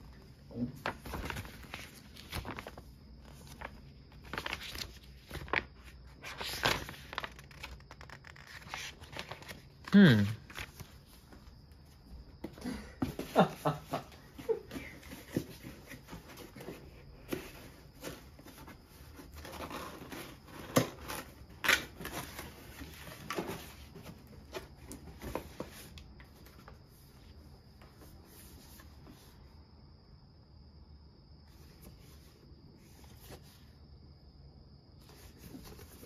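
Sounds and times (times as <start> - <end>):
cardboard scraping and rustling: 14.3 - 26.9, 35.0 - 36.0.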